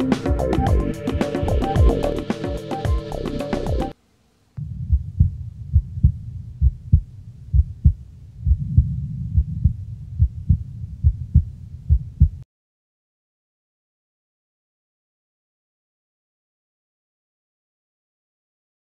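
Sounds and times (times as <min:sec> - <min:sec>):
low drone: 0:00.0 - 0:04.0
thudding heartbeat-like beats: 0:00.2 - 0:03.9, 0:04.6 - 0:12.4.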